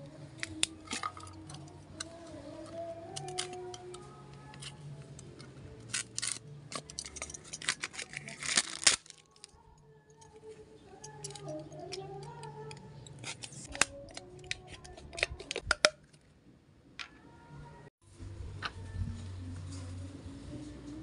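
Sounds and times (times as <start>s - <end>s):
knife cutting plastic bottle: 5.8s - 9.2s, 11.8s - 16.0s.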